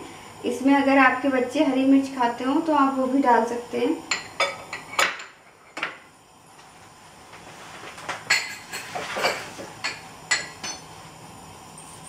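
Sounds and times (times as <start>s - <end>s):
utensil clinking against dish: 4.1s - 5.9s, 8.3s - 10.9s.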